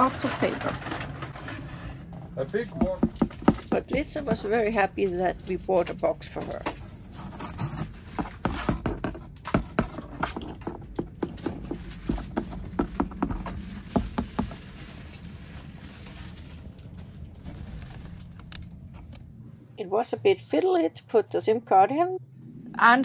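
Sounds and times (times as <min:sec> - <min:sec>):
steady low hum: 0:00.7 - 0:23.0
cat scratching cardboard box: 0:02.6 - 0:04.2, 0:06.8 - 0:14.7.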